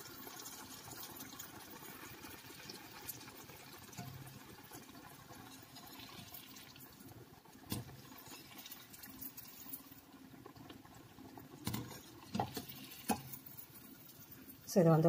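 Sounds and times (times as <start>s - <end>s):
soft sizzle of frying oil: 0.0s - 15.0s
skimmer tapping pan: 11.6s - 14.3s.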